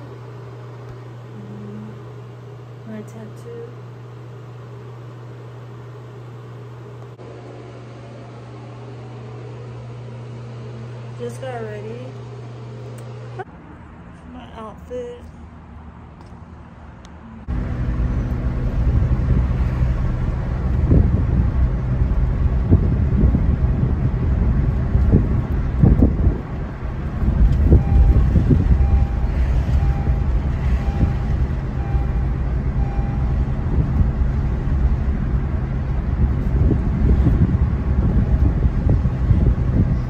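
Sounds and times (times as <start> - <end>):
engine and tyre rumble: 13.4 - 40.0
wind buffeting microphone: 17.5 - 40.0.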